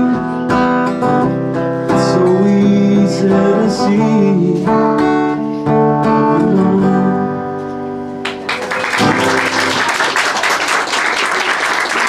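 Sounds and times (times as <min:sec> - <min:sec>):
applause: 0:08.2 - 0:12.0.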